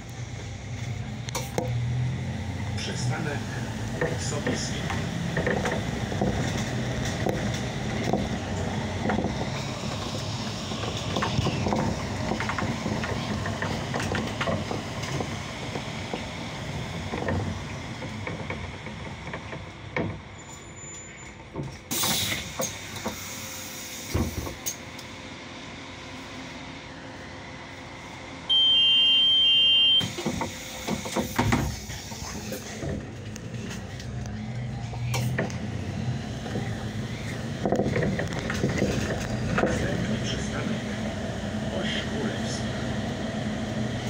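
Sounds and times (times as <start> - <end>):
bus running and rolling with rattles: 0.0 - 44.0
thump: 24.1 - 24.6, 30.1 - 31.8.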